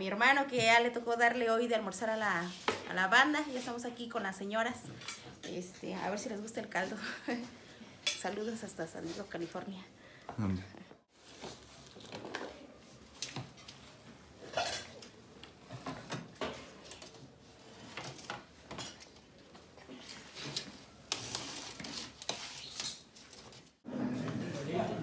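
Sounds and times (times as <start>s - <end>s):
dishes and cutlery clinking: 14.4s - 15.1s, 18.7s - 19.2s.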